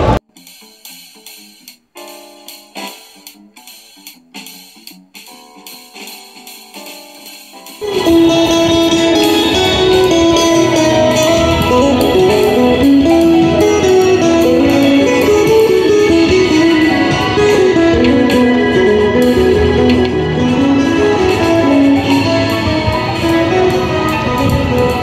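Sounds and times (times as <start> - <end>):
plucked guitar melody through amplifier: 7.8 - 25.0.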